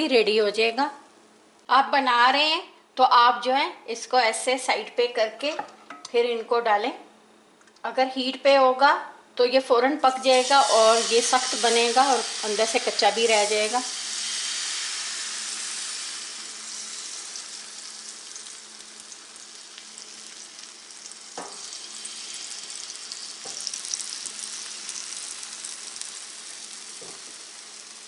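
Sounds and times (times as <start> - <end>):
batter sizzling in a frying pan: 10.1 - 28.0.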